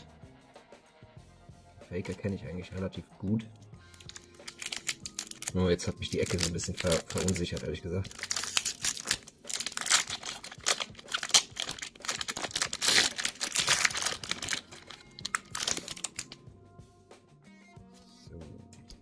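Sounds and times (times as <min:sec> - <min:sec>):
faint background music: 0:00.0 - 0:19.0
foil wrapper tearing and crinkling: 0:03.9 - 0:16.4.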